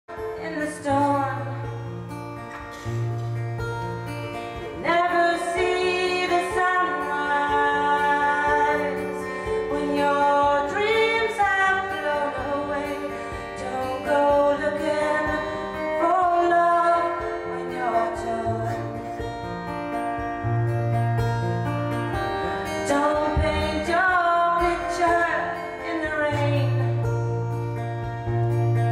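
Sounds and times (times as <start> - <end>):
woman singing: 0.1 - 2.0, 4.6 - 19.4, 22.4 - 27.4
acoustic guitar: 0.1 - 28.9.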